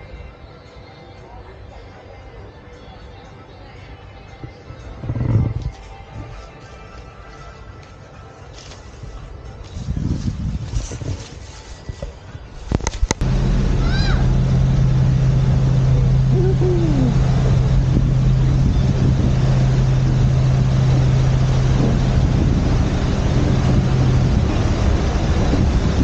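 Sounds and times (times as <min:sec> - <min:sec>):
wind on microphone: 0:04.7 - 0:06.4, 0:09.8 - 0:26.0
ferry engines droning: 0:13.2 - 0:26.0.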